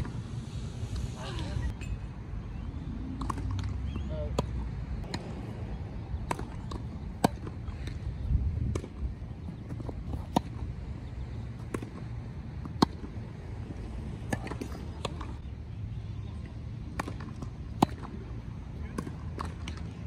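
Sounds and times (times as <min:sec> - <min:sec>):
tennis racquets hitting ball: 0:03.1 - 0:05.4, 0:06.2 - 0:10.8, 0:11.6 - 0:15.4, 0:16.8 - 0:20.0.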